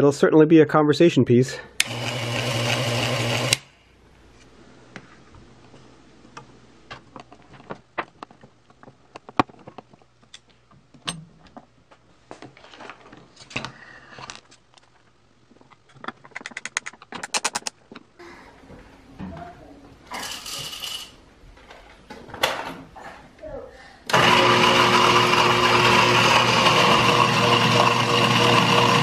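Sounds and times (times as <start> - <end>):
coffee grinder motor humming: 1.8 - 3.7, 24.1 - 29.0.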